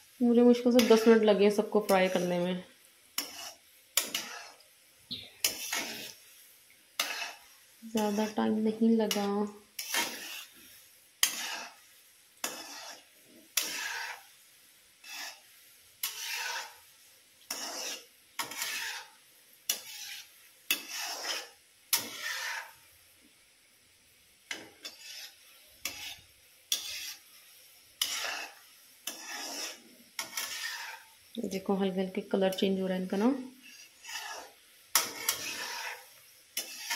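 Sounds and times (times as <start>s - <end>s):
metal spoon scraping iron pan: 0.7s - 2.4s, 3.2s - 4.6s, 5.4s - 6.2s, 7.0s - 10.6s, 11.2s - 11.8s, 12.4s - 14.3s, 15.0s - 15.4s, 16.0s - 16.8s, 17.5s - 22.8s, 24.5s - 27.3s, 28.0s - 31.1s, 32.5s - 36.9s.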